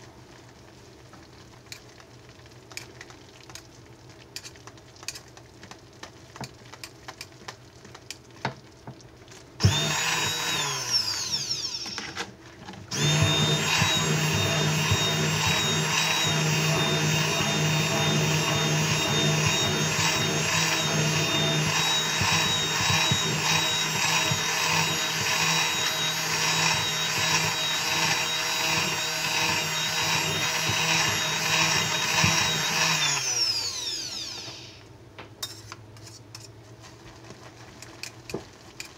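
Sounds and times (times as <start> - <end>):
stick blender running: 9.6 - 12.3, 12.9 - 34.8.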